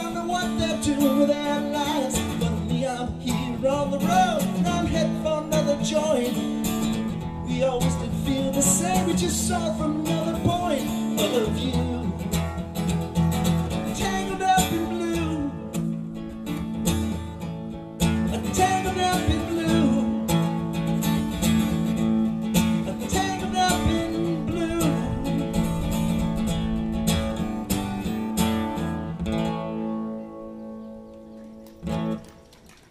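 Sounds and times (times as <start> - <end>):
acoustic guitar strumming: 0.0 - 32.4.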